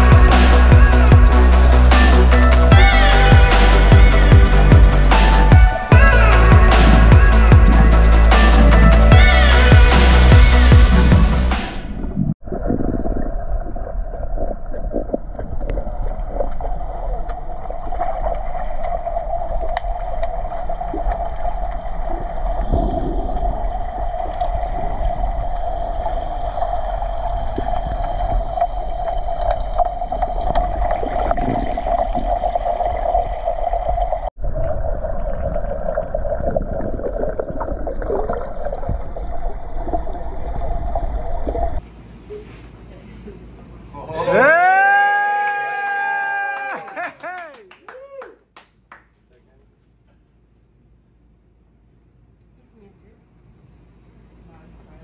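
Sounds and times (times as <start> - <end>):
muffled underwater hum: 0.0 - 11.4, 12.0 - 42.6
water noise: 0.0 - 41.8.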